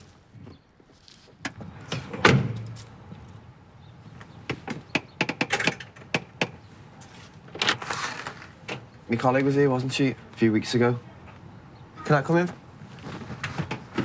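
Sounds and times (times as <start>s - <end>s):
van door slamming: 1.9s - 2.7s.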